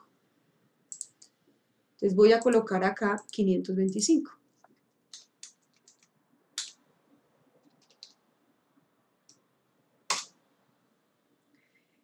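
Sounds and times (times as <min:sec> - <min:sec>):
mouse and keyboard clicks: 0:00.9 - 0:01.3, 0:07.6 - 0:08.2.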